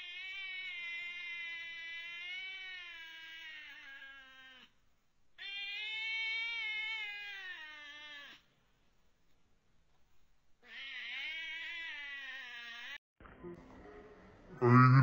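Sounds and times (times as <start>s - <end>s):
kitten meowing: 5.4s - 8.4s, 10.7s - 13.0s.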